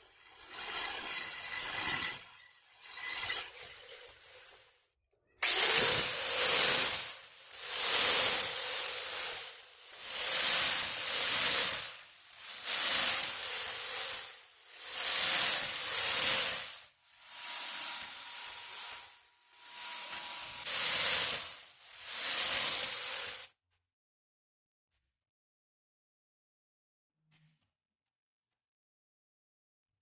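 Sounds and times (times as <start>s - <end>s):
wood grinding on sanding disc: 0.0s - 4.6s, 5.4s - 16.8s
power sander whining: 0.0s - 4.7s, 5.4s - 16.8s, 17.4s - 23.5s.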